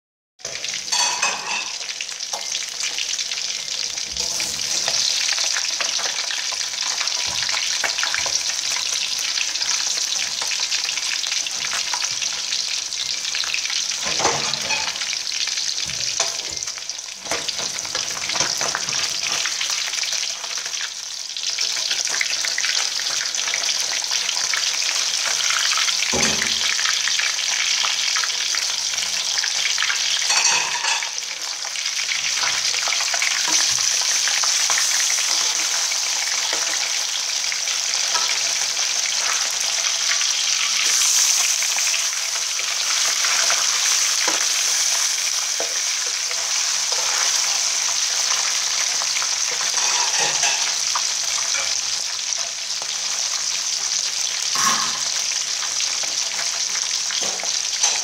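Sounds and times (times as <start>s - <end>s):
fish sizzling in hot oil: 0.4s - 58.0s
metal spatula scraping pan: 4.0s - 5.4s, 49.6s - 50.8s.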